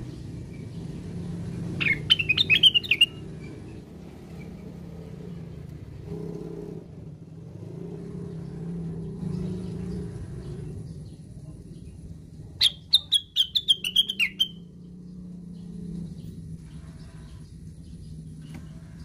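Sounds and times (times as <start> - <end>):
bird chattering whistled notes: 1.8 - 3.2, 12.6 - 14.7.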